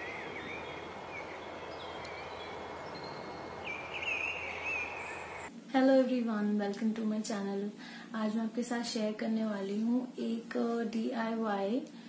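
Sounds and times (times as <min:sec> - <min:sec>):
small birds chirping: 0:00.0 - 0:05.5
outdoor background hiss: 0:00.0 - 0:12.0.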